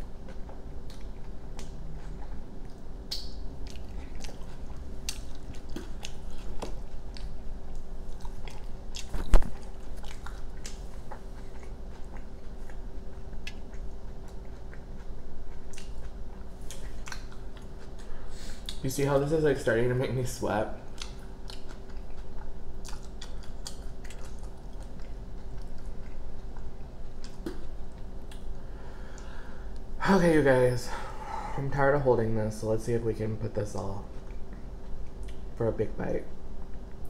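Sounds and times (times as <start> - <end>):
faint steady hum: 0.0 - 37.0
close-miked chewing: 0.2 - 18.8, 20.8 - 28.5
wet mouth clicks: 3.1 - 4.3.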